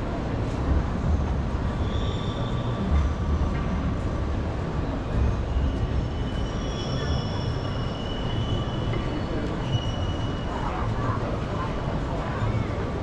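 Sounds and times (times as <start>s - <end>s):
low traffic rumble: 0.0s - 13.0s
tram wheels squealing: 1.1s - 13.0s
people talking: 8.5s - 13.0s.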